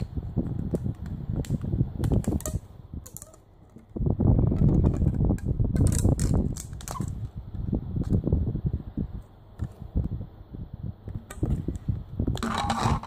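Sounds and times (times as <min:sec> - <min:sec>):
hands handling plastic: 0:00.0 - 0:07.4.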